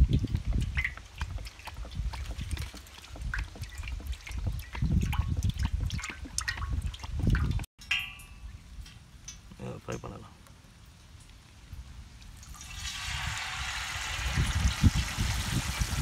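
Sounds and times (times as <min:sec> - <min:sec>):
gusty low rumble: 0:00.0 - 0:07.7, 0:13.0 - 0:16.0
oil trickling into metal pan: 0:00.0 - 0:09.4, 0:12.2 - 0:16.0.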